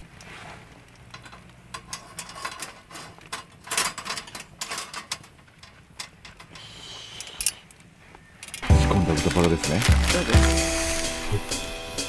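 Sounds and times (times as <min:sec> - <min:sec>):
wood fire crackling: 0:00.0 - 0:12.0
metal grill grate clinking: 0:00.8 - 0:06.7.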